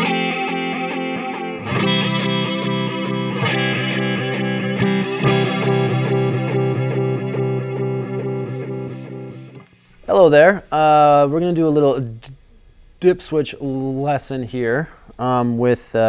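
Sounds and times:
flanged electric guitar chords: 0:00.0 - 0:09.9.

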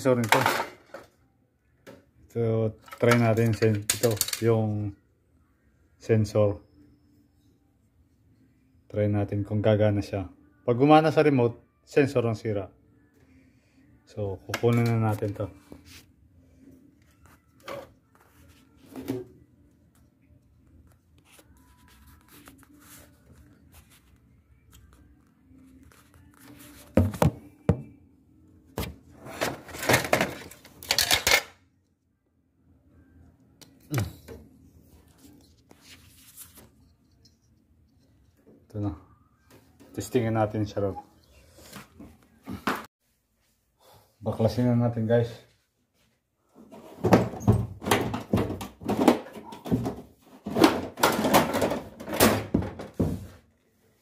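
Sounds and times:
clattering and rustling: 0:46.6 - 0:53.4.

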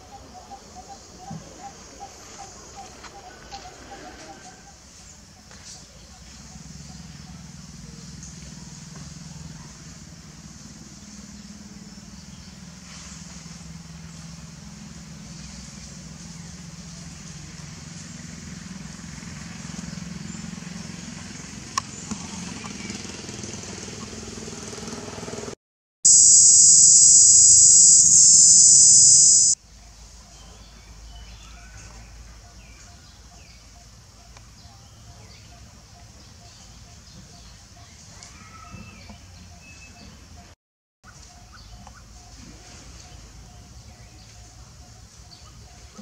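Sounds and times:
loud high-pitched buzz: 0:26.1 - 0:29.6
low hum: 0:26.1 - 0:29.6.

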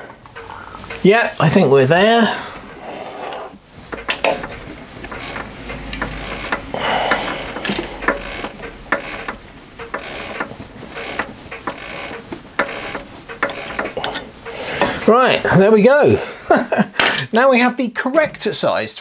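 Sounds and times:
threading die clicking on bolt: 0:03.9 - 0:14.0.

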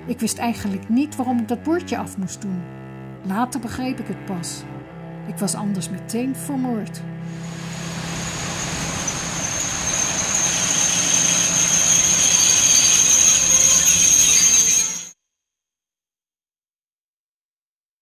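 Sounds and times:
rumbling noise: 0:07.3 - 0:14.1
train wheels squealing on rails: 0:07.3 - 0:15.2.

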